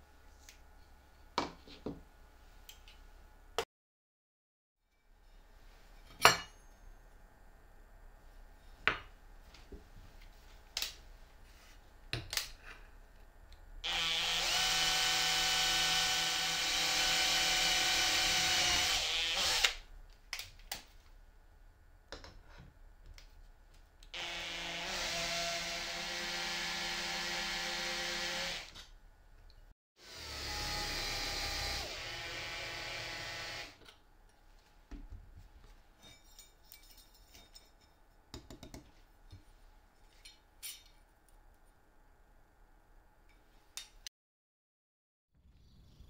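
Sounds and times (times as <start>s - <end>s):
cordless drill whining: 13.8s - 19.8s, 24.2s - 28.7s.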